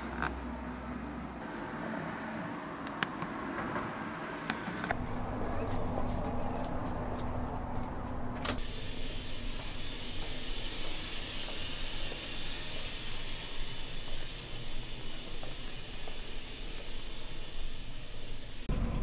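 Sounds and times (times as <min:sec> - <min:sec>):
low hum: 0:04.9 - 0:19.0
room tone hiss: 0:08.6 - 0:18.7.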